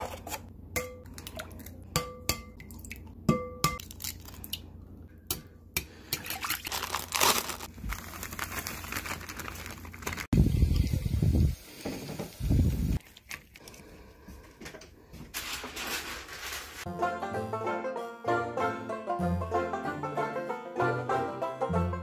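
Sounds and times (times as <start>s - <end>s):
dry mix poured from plastic bag: 6.6s - 10.3s.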